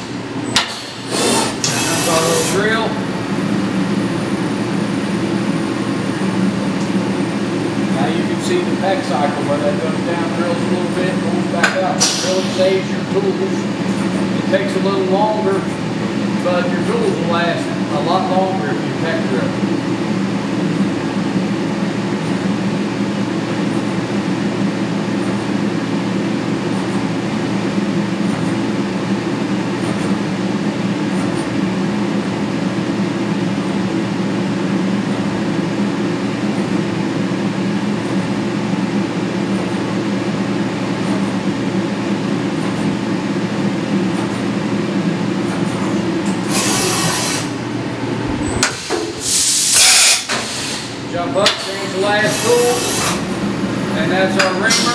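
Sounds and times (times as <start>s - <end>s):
loud bursts of hiss: 0.6s - 2.6s, 12.0s - 12.8s, 46.5s - 47.6s, 48.6s - 53.2s
milling machine drilling metal: 1.1s - 2.6s, 46.4s - 47.5s, 51.6s - 53.2s.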